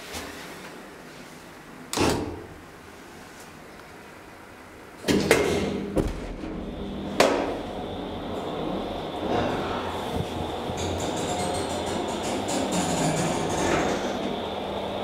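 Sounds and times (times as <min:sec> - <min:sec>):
elevator humming: 0:05.6 - 0:15.0.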